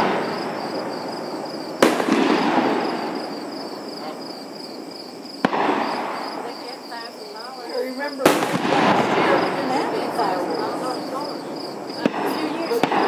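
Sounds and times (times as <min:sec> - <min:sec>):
firework bangs: 0:00.0 - 0:13.0
rolling echo: 0:00.0 - 0:13.0.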